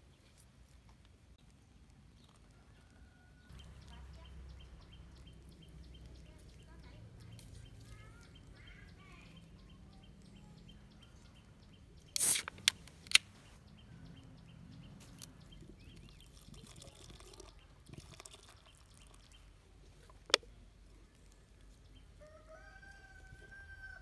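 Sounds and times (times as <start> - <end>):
can tab clicks: 12.2 - 13.2
can opening pop and hiss: 12.2 - 13.3
beer pouring into water: 15.9 - 19.6.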